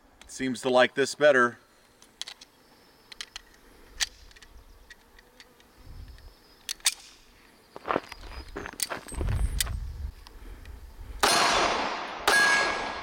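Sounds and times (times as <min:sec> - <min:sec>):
pistol metal and plastic clicks: 0:01.9 - 0:02.5, 0:03.1 - 0:07.2.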